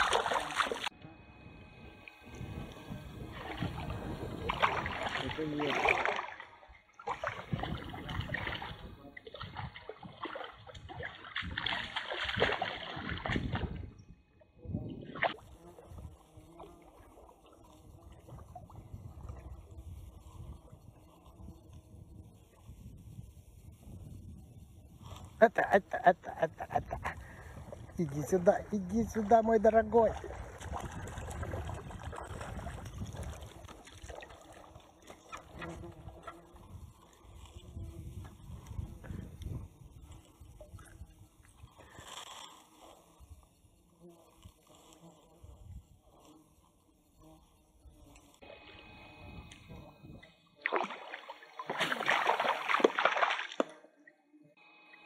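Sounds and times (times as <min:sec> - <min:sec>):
fish splashing at water surface: 0:00.0 - 0:00.9, 0:03.2 - 0:13.8, 0:30.1 - 0:36.3, 0:50.6 - 0:53.7
lake water splashing: 0:00.0 - 0:01.0, 0:01.8 - 0:14.0, 0:15.0 - 0:21.5, 0:25.0 - 0:45.2, 0:48.4 - 0:53.9
wind rumble on microphone: 0:01.1 - 0:05.9, 0:07.2 - 0:16.8, 0:17.6 - 0:33.8, 0:35.5 - 0:42.1, 0:45.4 - 0:46.2, 0:48.9 - 0:50.3.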